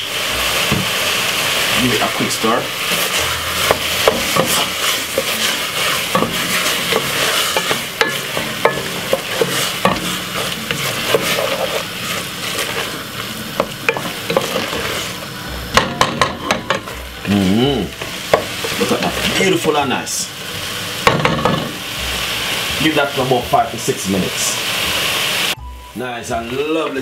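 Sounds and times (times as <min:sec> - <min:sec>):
frying sizzle: 0:00.0 - 0:27.0
wooden spoon scraping metal pot: 0:00.4 - 0:15.3, 0:16.0 - 0:21.8.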